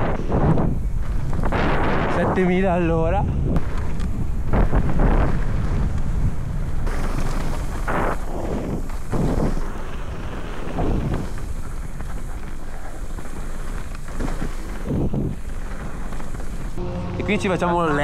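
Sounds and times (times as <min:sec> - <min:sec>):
wind on microphone: 0:00.0 - 0:17.3
bike tyre and frame noise: 0:00.0 - 0:18.0
bike jolting over bumps: 0:03.4 - 0:16.8.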